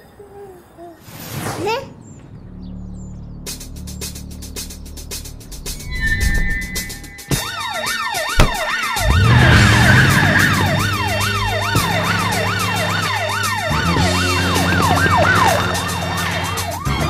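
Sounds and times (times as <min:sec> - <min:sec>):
low held music notes: 0:02.1 - 0:07.4, 0:08.4 - 0:16.9
siren wailing: 0:05.7 - 0:17.0.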